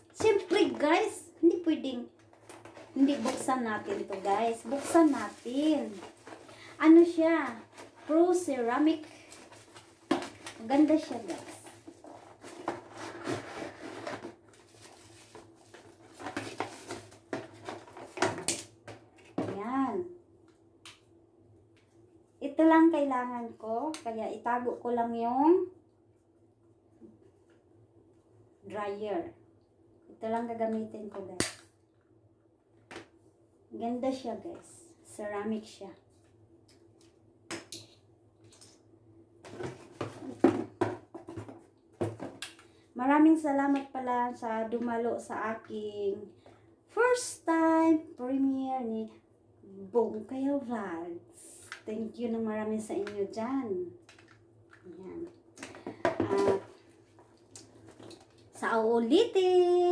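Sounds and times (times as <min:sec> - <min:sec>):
cardboard packaging rustling: 0:02.4 - 0:18.4
knocks and rattles of packaging: 0:09.3 - 0:19.5, 0:39.4 - 0:42.4, 0:55.6 - 0:57.0.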